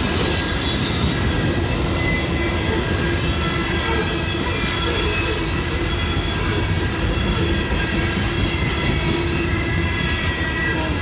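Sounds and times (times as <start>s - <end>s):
train wheels rumbling on rails: 0.0s - 11.0s
wheels squealing: 0.0s - 11.0s.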